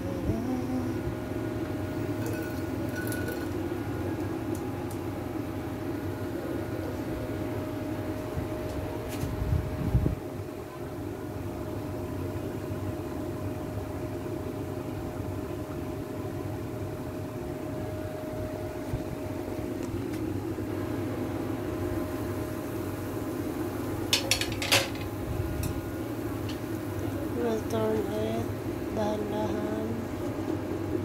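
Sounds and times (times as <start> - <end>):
thin whine: 0.0 - 11.1
mechanical hum: 0.0 - 31.0.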